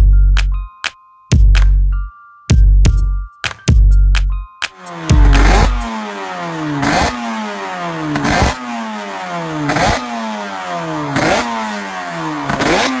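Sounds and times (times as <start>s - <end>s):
two-stroke racing engine revving: 4.8s - 13.0s.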